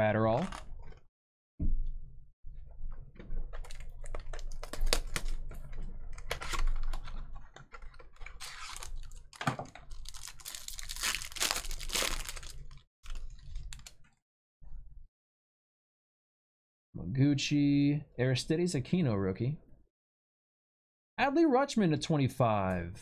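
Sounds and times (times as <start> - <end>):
plastic wrapper crinkling: 3.6 - 14.1.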